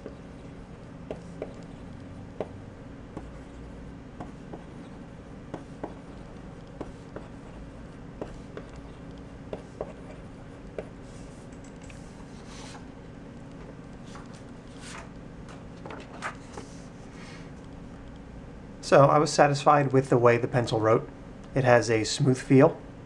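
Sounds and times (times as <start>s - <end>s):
pencil scratching on paper: 0.0s - 1.9s, 3.2s - 7.6s, 8.2s - 11.5s.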